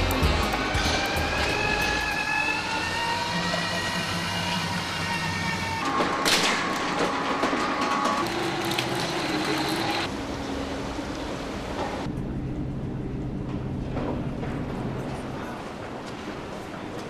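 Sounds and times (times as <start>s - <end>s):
escalators humming: 6.9s - 17.0s.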